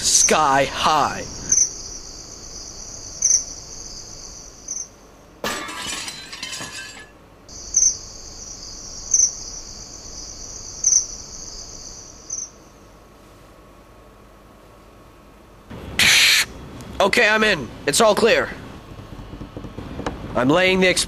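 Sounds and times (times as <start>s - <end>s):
crickets chirping: 0.0s - 5.4s, 6.4s - 13.2s.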